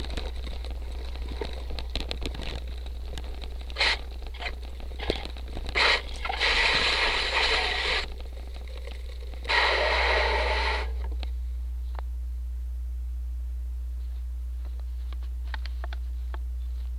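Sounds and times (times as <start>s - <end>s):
bike tyres on dirt trail: 0.0s - 11.1s
steady low hum: 0.0s - 16.9s
scraping hiss: 3.7s - 8.1s, 9.4s - 11.1s.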